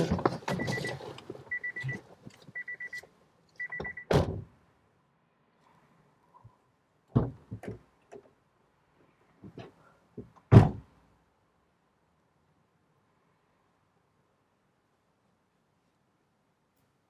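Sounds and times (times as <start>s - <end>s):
car door warning beeps: 0.5s - 2.0s, 2.6s - 3.0s, 3.6s - 4.2s.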